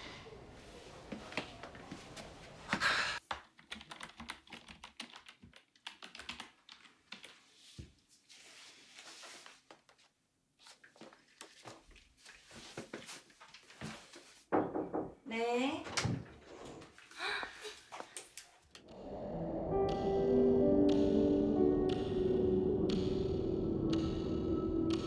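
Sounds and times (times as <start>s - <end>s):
keyboard typing: 3.5s - 7.3s
knock on wooden door: 14.5s - 15.2s.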